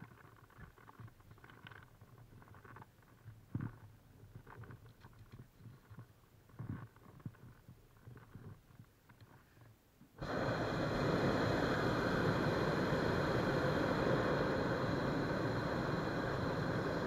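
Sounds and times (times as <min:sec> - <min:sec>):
propane burner rushing blast: 0:10.2 - 0:17.0.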